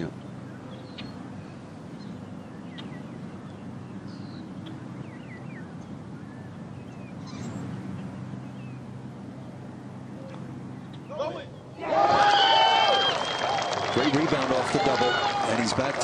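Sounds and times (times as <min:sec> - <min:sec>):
low background hum: 0:00.0 - 0:16.0
bird chirps and calls: 0:00.1 - 0:11.8.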